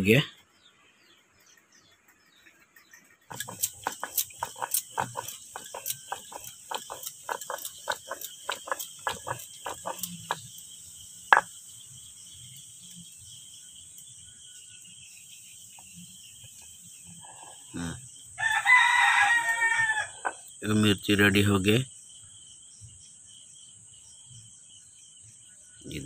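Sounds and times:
stone roller knocking and grinding: 3.2s - 10.6s, 11.3s - 11.6s, 20.1s - 20.5s
insect chirring: 3.3s - 26.0s
rooster crowing: 18.4s - 20.4s.

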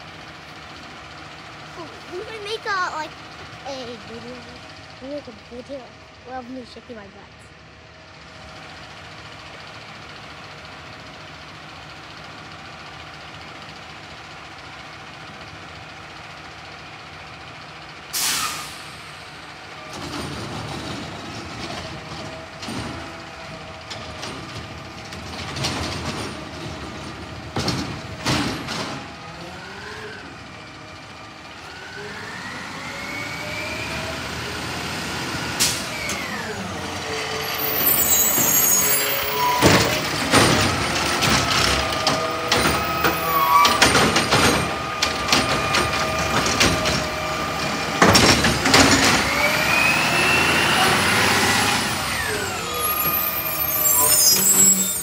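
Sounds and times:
garbage truck diesel engine: 0.0s - 55.0s
air brakes hissing: 18.1s - 19.3s, 35.6s - 36.4s, 37.3s - 40.0s, 52.2s - 55.0s.

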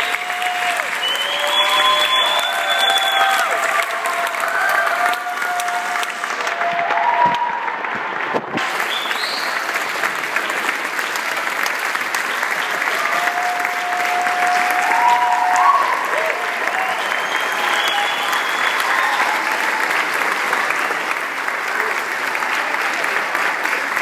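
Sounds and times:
voices whooping and cheering: 0.0s - 7.9s, 12.9s - 20.2s
audience applauding: 0.0s - 24.0s.

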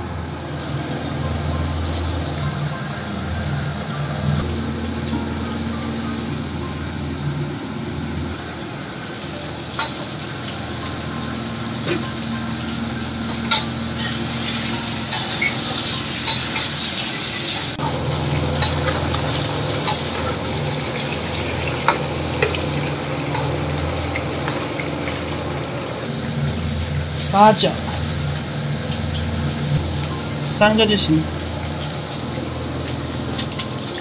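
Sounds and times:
meat sizzling in a wok: 8.4s - 34.0s
metal spatula scraping wok: 13.3s - 17.8s.

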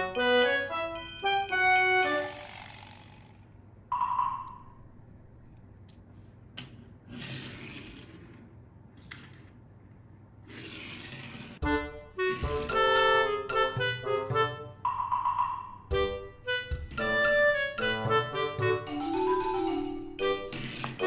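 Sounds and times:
toy kart rolling on wooden table: 7.0s - 9.6s, 10.4s - 11.6s, 20.5s - 21.0s.

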